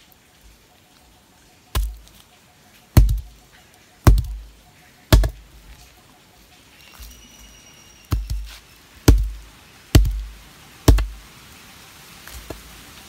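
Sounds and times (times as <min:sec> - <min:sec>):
knife chopping jackfruit: 0:01.8 - 0:02.0, 0:03.0 - 0:03.3, 0:04.1 - 0:04.4, 0:05.1 - 0:05.4, 0:08.1 - 0:09.4, 0:10.0 - 0:10.3, 0:10.9 - 0:11.2.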